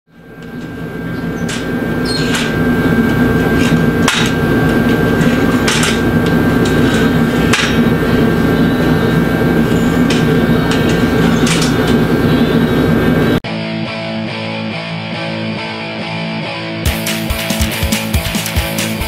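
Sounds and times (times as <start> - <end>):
steady background hum: 0.1 - 13.4
hammer striking steel: 0.3 - 12.4.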